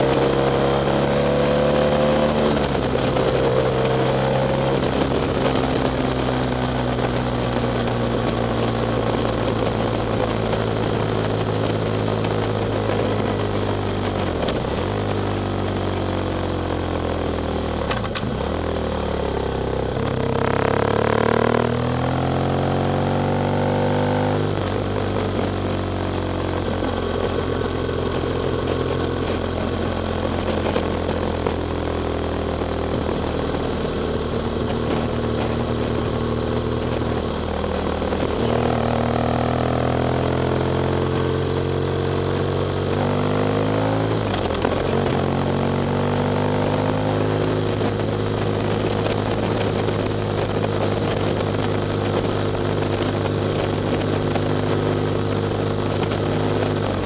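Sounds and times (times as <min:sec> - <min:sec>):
motorcycle engine cruising: 0:00.0 - 0:57.0.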